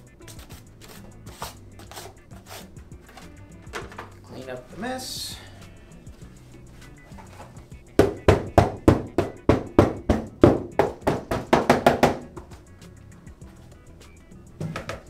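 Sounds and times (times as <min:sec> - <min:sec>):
hand slapping plastic panel: 0:08.0 - 0:12.6, 0:14.6 - 0:15.0.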